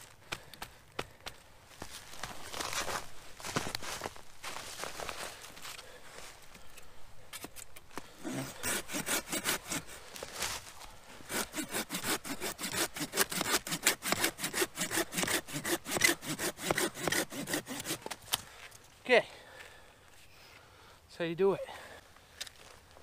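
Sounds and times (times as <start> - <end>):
hand saw cutting wood: 8.2 - 10.1, 11.2 - 18.2.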